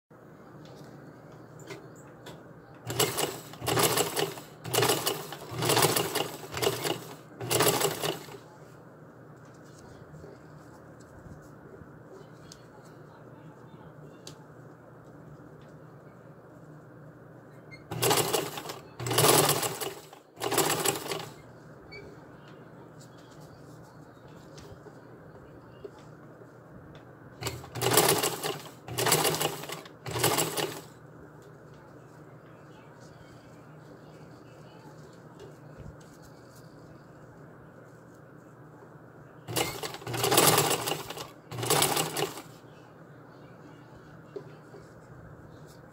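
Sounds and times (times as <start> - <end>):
sewing machine stitching: 2.8 - 8.4, 17.9 - 21.4, 27.4 - 30.9, 39.5 - 42.5.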